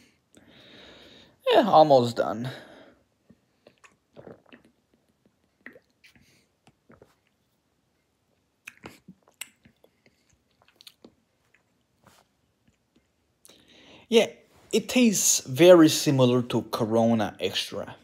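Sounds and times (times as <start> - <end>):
lip smacks and clicks: 3.3 - 7.4, 8.3 - 11.9
person swallowing: 3.7 - 7.3.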